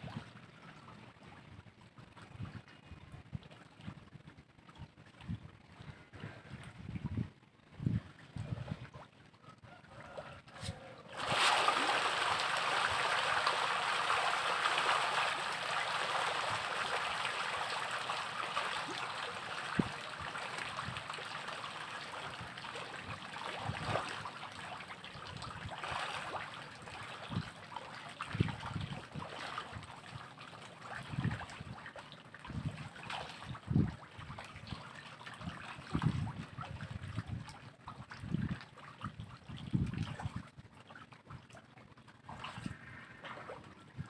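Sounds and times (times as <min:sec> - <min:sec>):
fish splashing at water surface: 0:10.0 - 0:27.5.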